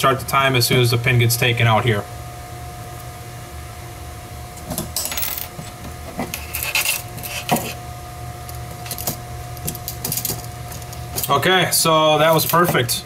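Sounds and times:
faint steady hum: 0:00.0 - 0:13.0
metal pin dropped on table: 0:04.6 - 0:05.6.

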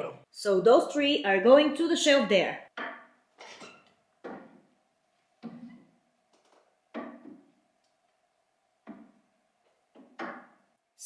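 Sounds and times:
objects knocking on shelf: 0:02.8 - 0:03.6, 0:04.2 - 0:04.7, 0:06.9 - 0:07.5.

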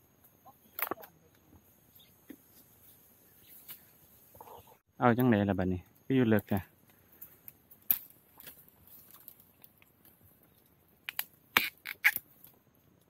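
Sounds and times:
bamboo shoots snapping: 0:00.7 - 0:01.1, 0:07.2 - 0:10.2, 0:11.0 - 0:12.6.

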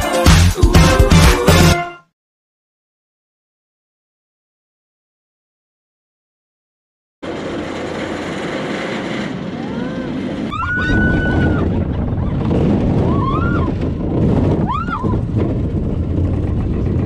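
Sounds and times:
roller coaster cars rumbling: 0:07.2 - 0:17.0
wind buffeting microphone: 0:07.6 - 0:17.0
riders shrieking: 0:09.6 - 0:12.4, 0:13.0 - 0:13.8.

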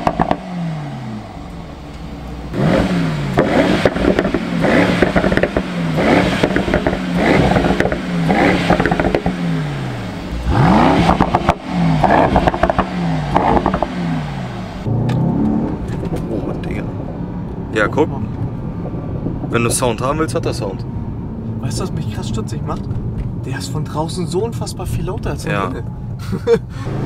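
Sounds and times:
exhaust crackles and pops: 0:00.0 - 0:00.5, 0:01.4 - 0:09.4, 0:10.2 - 0:14.0, 0:14.8 - 0:20.8
car engine revving: 0:00.0 - 0:27.0.

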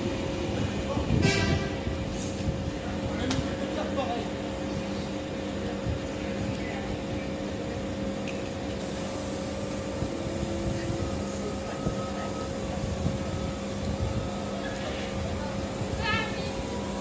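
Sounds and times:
trains humming and rumbling: 0:00.0 - 0:17.0
constant equipment tones: 0:05.4 - 0:17.0.

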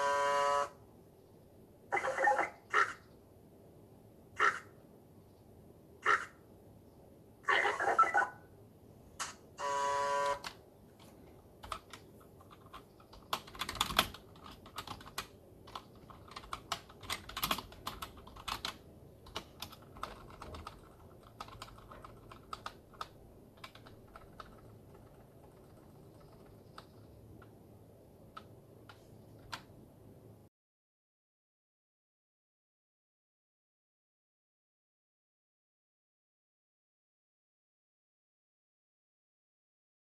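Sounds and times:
buzzing tone over radio: 0:09.6 - 0:10.5
typing on computer keyboard: 0:10.2 - 0:27.6, 0:28.3 - 0:29.7.

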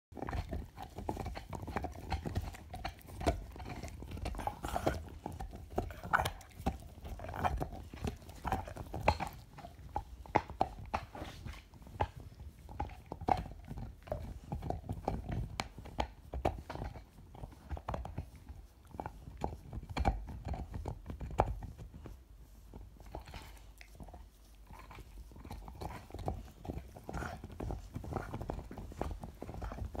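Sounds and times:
dog gnawing on antler: 0:00.1 - 0:30.0.

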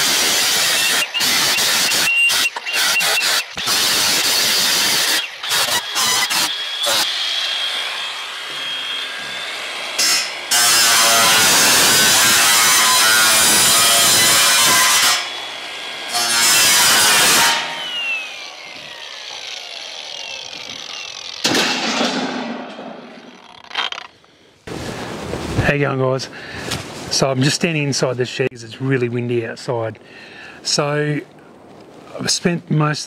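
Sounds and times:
cordless drill driving screws: 0:00.0 - 0:07.5, 0:17.4 - 0:21.5.

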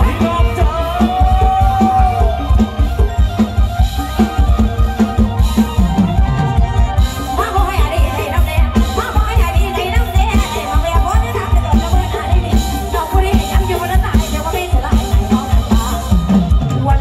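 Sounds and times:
bass: 0:00.0 - 0:17.0
keyboard melody: 0:00.0 - 0:17.0
woman singing: 0:07.3 - 0:17.0.

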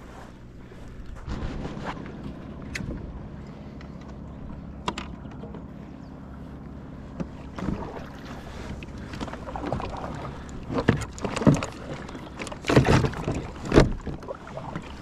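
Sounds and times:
water splashing against a kayak: 0:06.4 - 0:15.0.

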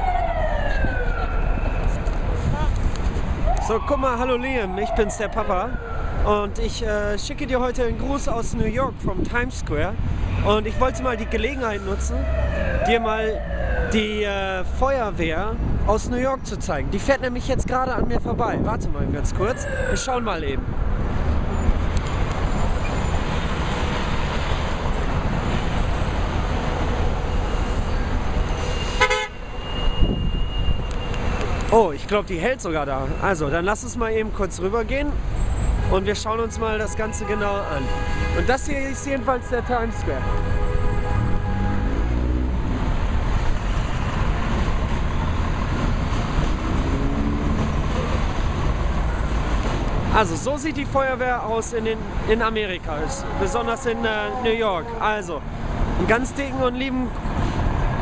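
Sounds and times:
continuous city din: 0:00.0 - 0:58.0
heavy traffic rumbling: 0:00.0 - 0:58.0
vehicle horn honk: 0:28.7 - 0:30.6, 0:35.9 - 0:38.6, 0:39.3 - 0:42.1.

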